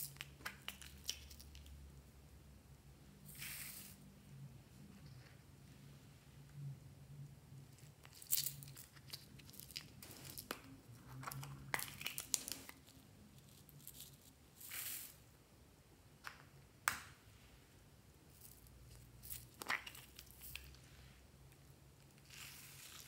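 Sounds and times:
plastic crackling: 11.2s - 13.0s.

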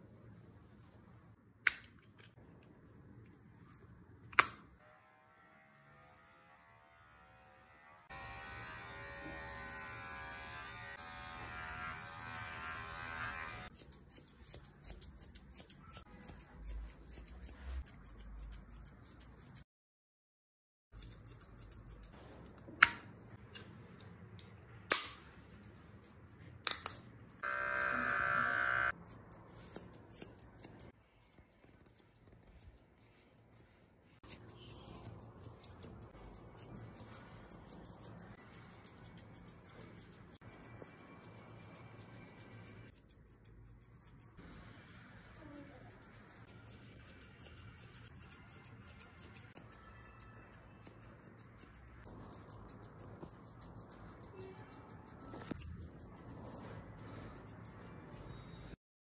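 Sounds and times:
pet hair clipper buzzing: 4.8s - 14.7s, 27.4s - 29.0s
scissors snipping fur: 8.2s - 19.7s, 21.0s - 25.3s, 26.6s - 27.1s, 28.9s - 58.7s.

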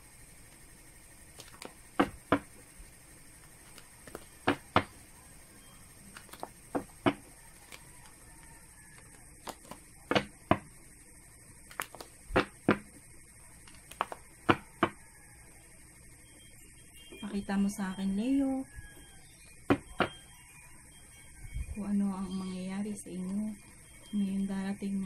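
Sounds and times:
cards being shuffled: 1.3s - 2.5s, 3.4s - 5.0s, 6.0s - 10.3s, 11.7s - 12.8s, 13.6s - 14.2s
sharp taps of cards: 1.4s - 2.5s, 3.6s - 5.0s, 6.1s - 7.8s, 11.7s - 12.9s, 13.6s - 15.0s.

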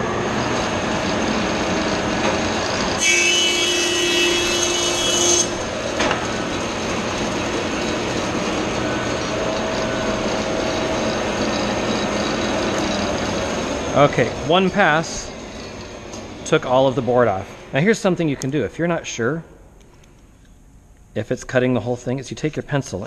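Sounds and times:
planer whine cutting wood: 0.0s - 16.5s
thickness planer motor running: 0.0s - 17.6s.

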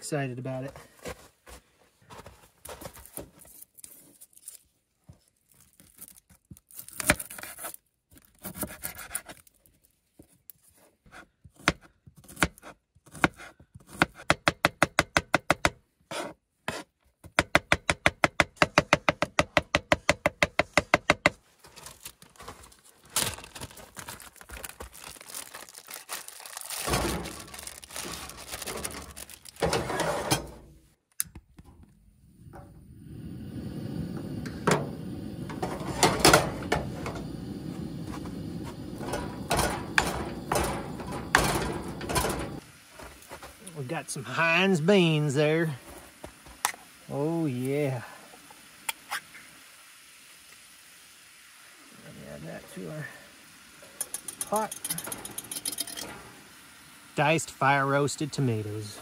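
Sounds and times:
board and knife scraping: 7.0s - 7.8s, 8.4s - 9.4s, 11.0s - 14.3s, 16.1s - 17.0s
knife chopping on wooden board: 11.6s - 15.8s.

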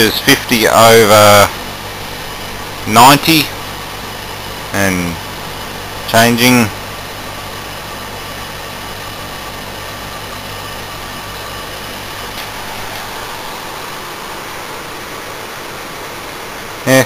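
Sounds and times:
air conditioner humming: 0.0s - 17.0s.

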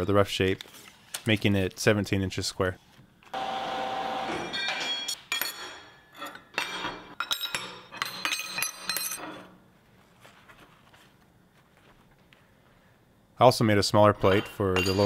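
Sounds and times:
steel bars clinking on metal table: 4.5s - 9.4s, 14.3s - 15.0s.

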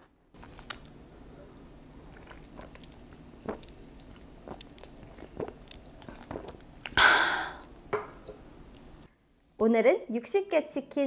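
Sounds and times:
loud breathy exhale: 7.0s - 7.6s.

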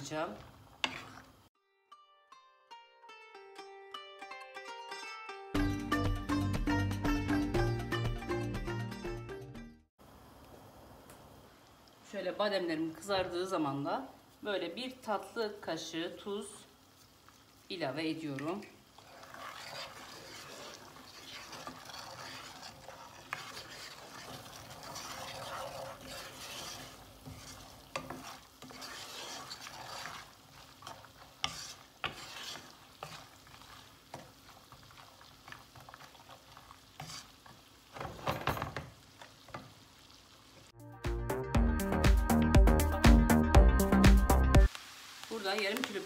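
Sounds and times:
almonds sizzling in a pan: 0.0s - 1.6s, 10.0s - 40.8s, 44.6s - 46.0s
wooden spoon scraping a pan: 0.1s - 1.4s, 18.2s - 39.8s.

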